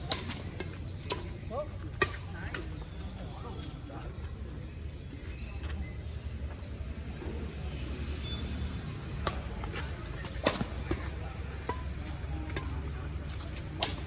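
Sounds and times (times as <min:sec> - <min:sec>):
rackets hitting shuttlecock: 0:00.0 - 0:03.1, 0:09.2 - 0:14.0.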